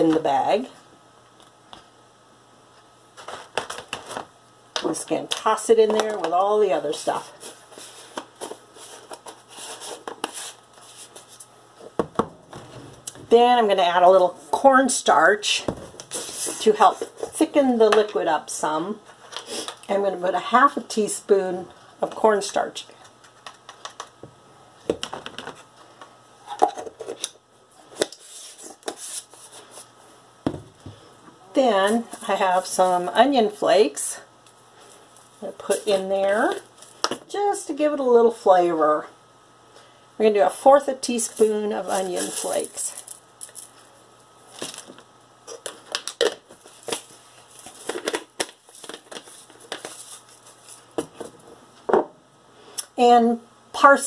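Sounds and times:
container rustling: 41.2 - 43.9, 44.5 - 51.0.

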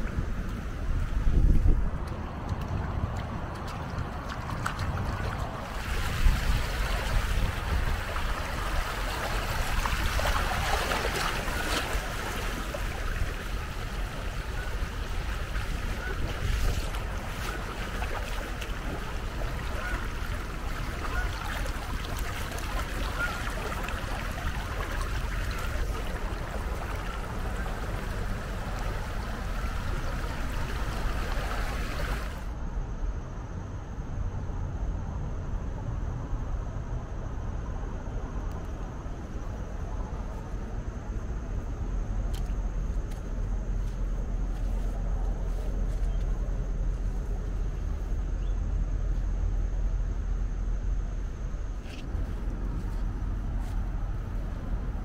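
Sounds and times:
wind buffeting microphone: 0.0 - 32.5, 39.1 - 55.0
river water rushing: 2.3 - 32.5.

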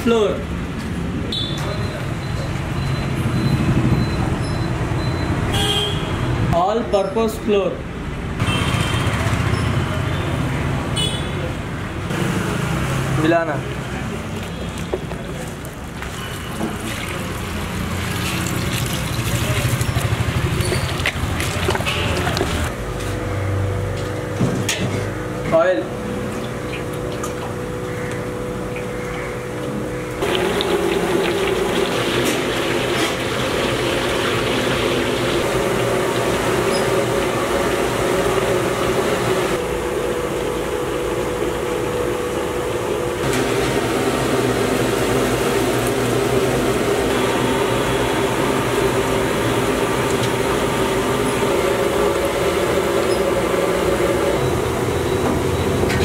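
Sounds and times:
chicken deep-frying in oil: 15.6 - 22.7, 30.2 - 39.6.

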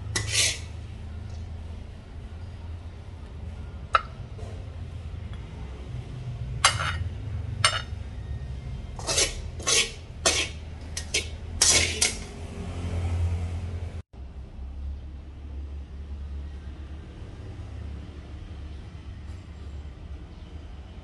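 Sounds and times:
wooden spatula scraping a plate: 0.0 - 0.8, 9.0 - 12.3.

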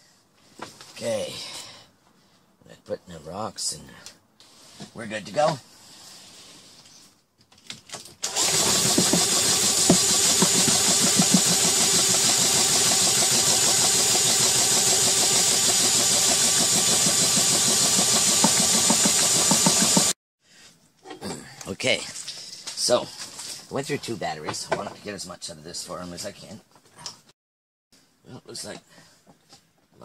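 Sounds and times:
cordless drill running: 8.2 - 20.2.

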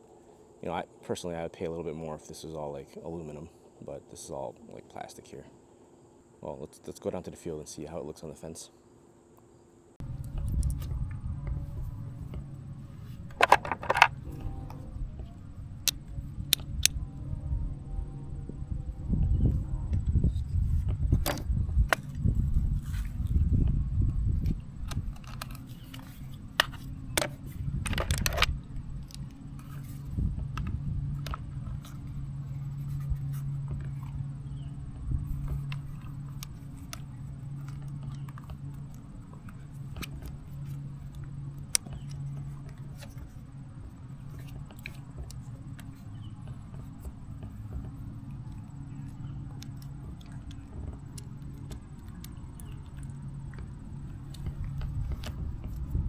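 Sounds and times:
low hum: 0.0 - 56.0
plastic case clicks and rustles: 13.2 - 14.2, 24.8 - 29.3.

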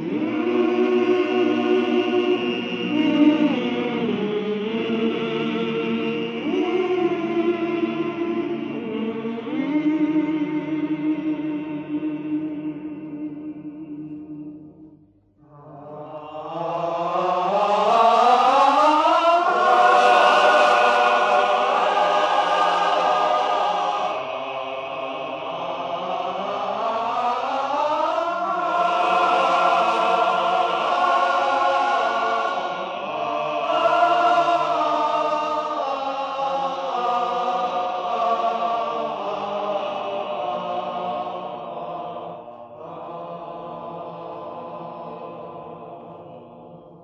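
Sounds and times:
wordless choir singing: 0.0 - 47.0.

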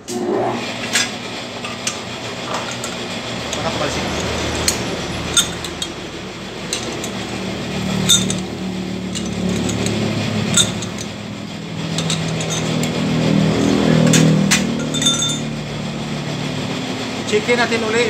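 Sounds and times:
steady low hum: 0.0 - 18.0
chuck key metallic clinks: 4.2 - 6.0, 6.7 - 11.2, 11.9 - 12.8, 14.1 - 15.5.

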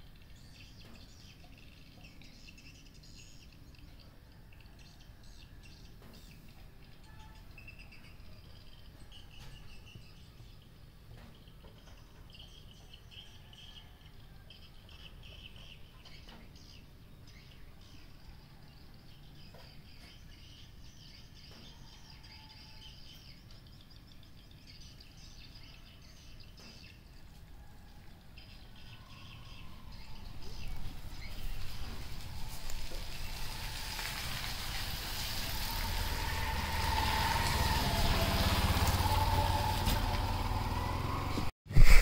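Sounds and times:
faint bird chirps: 0.0 - 32.6
rushing noise with low rumble: 30.0 - 42.0.

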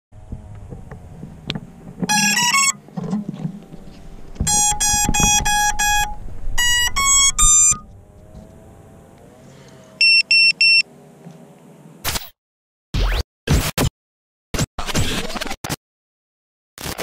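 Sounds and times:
drone motor beeps: 2.1 - 2.8, 4.4 - 8.0, 10.0 - 10.9.

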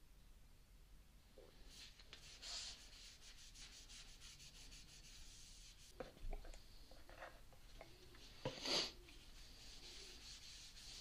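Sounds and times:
cloth rag rubbing wood: 1.7 - 6.0, 8.6 - 11.0.

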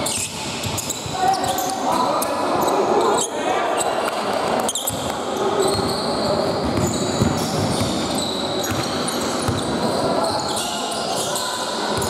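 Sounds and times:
sneakers squeaking on court floor: 0.0 - 12.0
basketball bouncing: 6.6 - 9.8.

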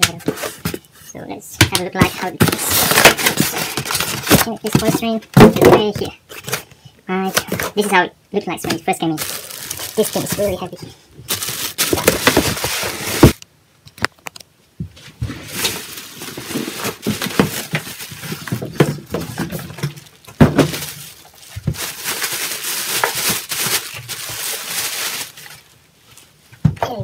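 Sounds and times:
plastic wrapping crinkling: 2.0 - 6.6, 8.7 - 13.4, 15.3 - 26.4.

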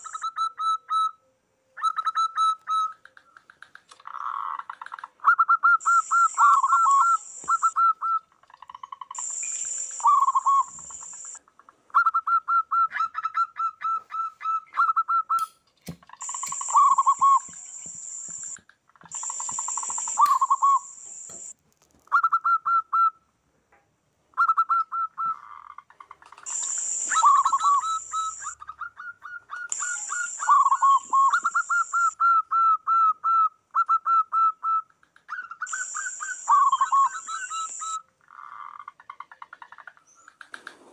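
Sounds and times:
doves cooing: 1.9 - 11.4, 16.1 - 21.5, 24.5 - 32.7, 35.1 - 40.9.

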